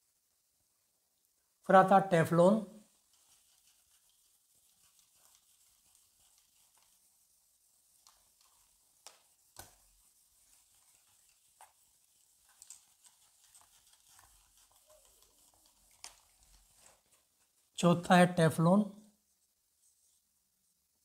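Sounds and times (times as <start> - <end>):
duster wiping whiteboard: 1.8 - 17.8.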